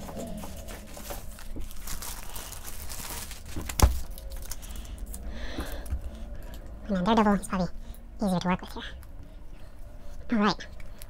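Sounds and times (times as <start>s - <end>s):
plastic crinkling rustle: 0.0s - 5.9s.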